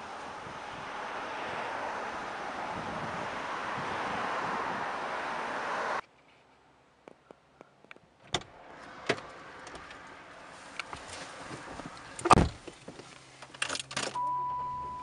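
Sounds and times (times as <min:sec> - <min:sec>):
knocks and rustles: 0:10.8 - 0:14.2
car door opening: 0:10.9 - 0:15.0
car door shutting with a thud: 0:12.2 - 0:12.8.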